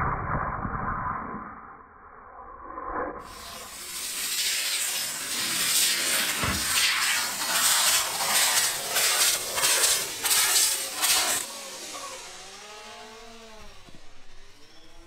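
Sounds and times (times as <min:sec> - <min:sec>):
rocket motors hissing: 0:03.2 - 0:15.0.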